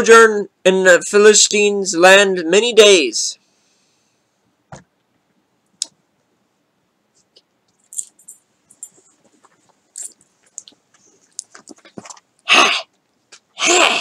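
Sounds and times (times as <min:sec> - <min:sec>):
small jingly rattles: 0:07.7 - 0:12.0.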